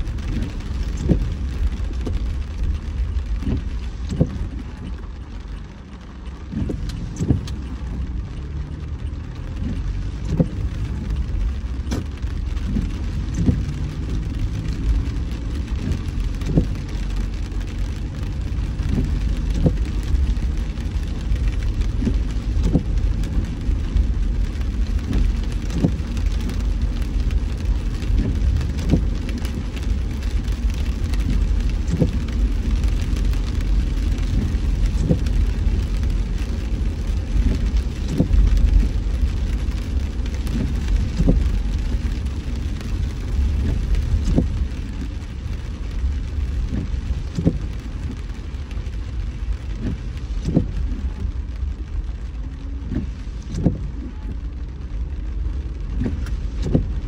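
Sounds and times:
rain hiss: 0:00.0 - 0:57.0
road rumble: 0:00.0 - 0:57.0.

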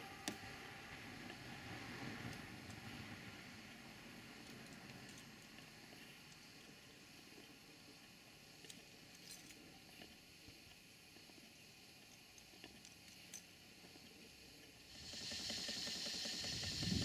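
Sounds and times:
steam engine hissing: 0:00.0 - 0:04.3, 0:14.8 - 0:17.0.

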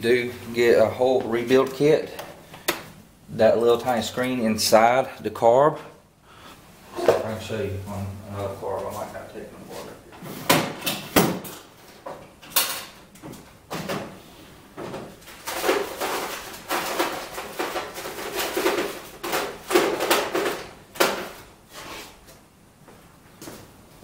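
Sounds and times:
parts knocking and clattering: 0:14.8 - 0:21.5.

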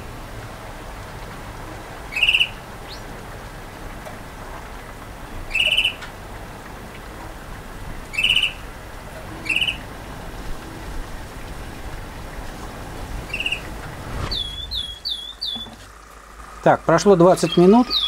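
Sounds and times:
canary chirping: 0:02.1 - 0:03.0, 0:05.5 - 0:06.0, 0:08.1 - 0:08.6, 0:09.4 - 0:09.8, 0:14.3 - 0:15.8, 0:17.4 - 0:18.0
swooping whistled bird notes: 0:02.1 - 0:03.0, 0:08.1 - 0:08.6, 0:09.4 - 0:09.8, 0:13.2 - 0:15.8, 0:17.4 - 0:18.0.

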